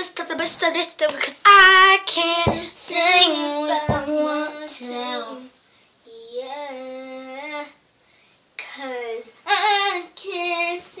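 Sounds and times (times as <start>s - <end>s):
dull thumps: 2.5s - 3.2s, 3.8s - 4.3s.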